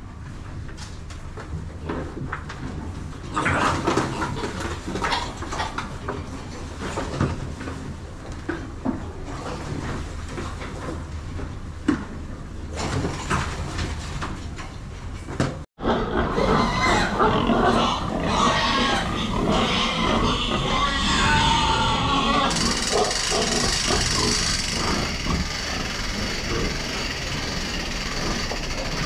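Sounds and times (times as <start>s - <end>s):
pigs grunting: 15.8s - 29.0s.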